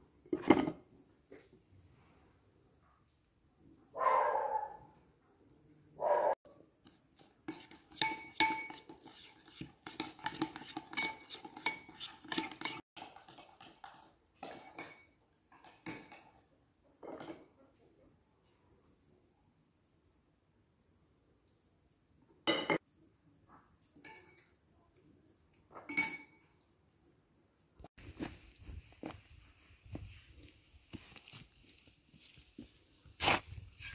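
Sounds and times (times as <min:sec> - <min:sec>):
spoon stirring in ceramic bowl: 0:06.8 - 0:16.5.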